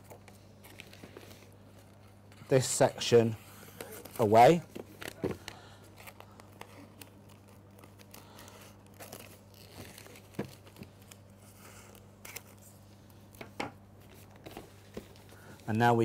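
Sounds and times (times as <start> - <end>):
cellophane crinkling: 3.7 - 16.0.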